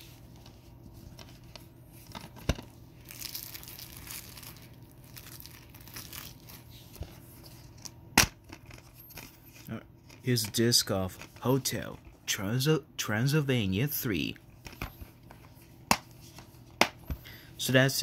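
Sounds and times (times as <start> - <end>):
plastic wrap crinkling and tearing: 3.0 - 6.9.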